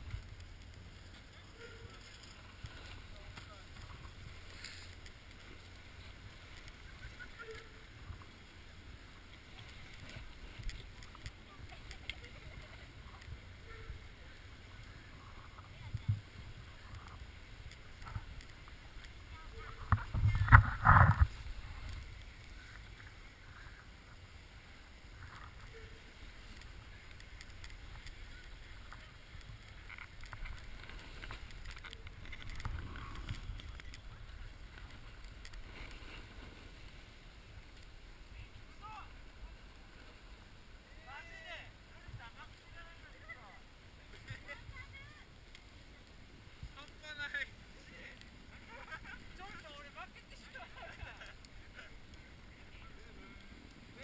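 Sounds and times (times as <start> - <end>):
snowy slope ambience: 0.0 - 54.0
wind rumble on microphone: 9.2 - 38.8
wind on microphone: 10.3 - 23.8.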